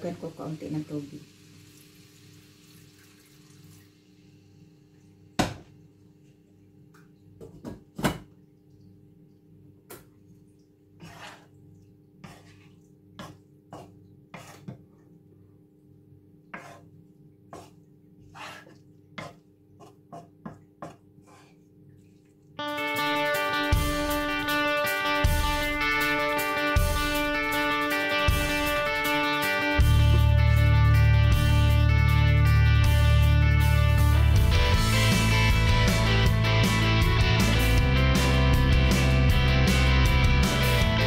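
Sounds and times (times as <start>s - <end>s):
wooden spatula scraping a wok: 11.0s - 11.6s, 12.2s - 14.9s, 16.5s - 21.7s.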